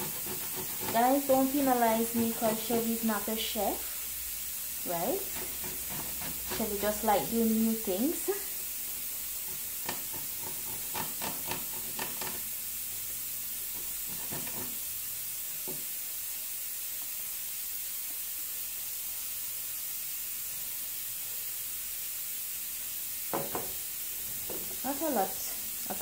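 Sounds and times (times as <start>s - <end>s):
garlic grating on metal grater: 0.0s - 3.0s, 5.0s - 8.2s, 9.2s - 12.6s, 13.6s - 14.9s
steady hiss: 0.0s - 26.0s.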